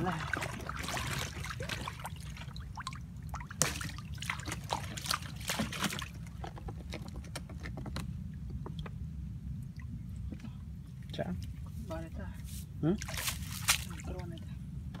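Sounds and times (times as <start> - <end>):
steady low rumble: 0.0 - 15.0
water sloshing and trickling: 0.0 - 15.0.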